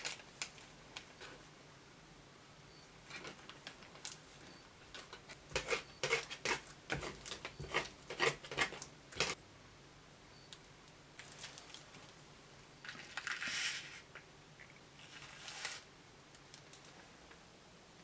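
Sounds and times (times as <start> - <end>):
plastic spoon scraping: 5.0 - 9.4, 12.9 - 14.1, 15.0 - 15.9.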